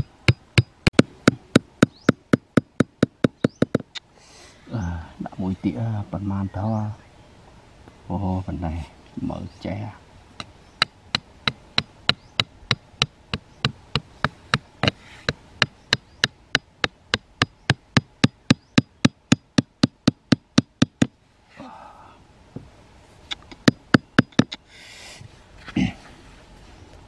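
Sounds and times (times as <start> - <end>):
hammer striking wooden stake: 0.0 - 4.0, 10.4 - 21.2, 23.3 - 24.6.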